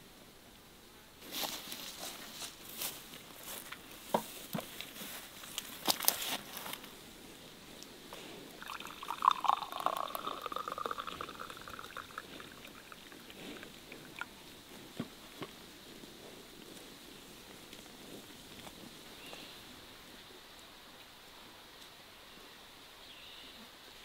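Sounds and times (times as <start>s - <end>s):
tea pouring into glass mug: 8.6s - 13.4s, 14.0s - 14.4s.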